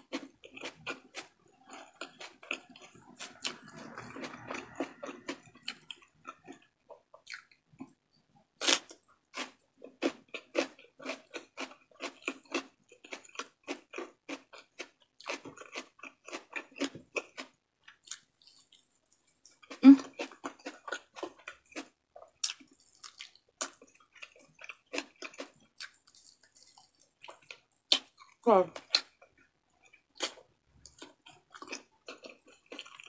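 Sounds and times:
wet chewing smacks: 0:21.8 - 0:33.0.

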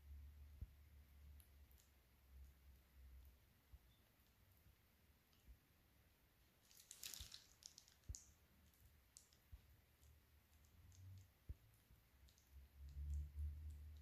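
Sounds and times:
plastic piping bag rustling: 0:06.5 - 0:10.7.

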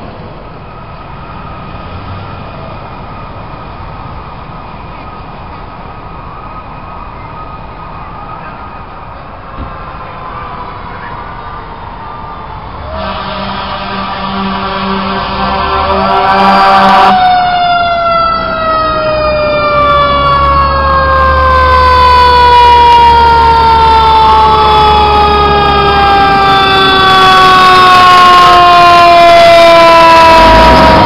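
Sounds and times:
faint second siren tone: 0:05.9 - 0:31.0
fire engine siren winding down: 0:08.8 - 0:31.0.

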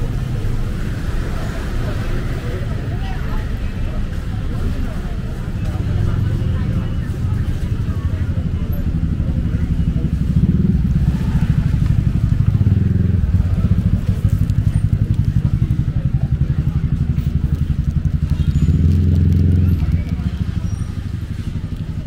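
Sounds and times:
faint voices: 0:00.0 - 0:22.0.

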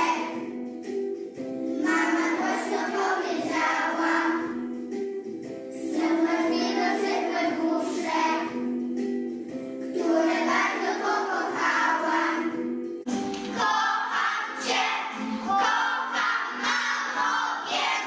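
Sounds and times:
children singing in unison: 0:00.0 - 0:00.5, 0:01.8 - 0:04.6, 0:05.8 - 0:08.6, 0:09.9 - 0:12.6, 0:13.5 - 0:18.0.

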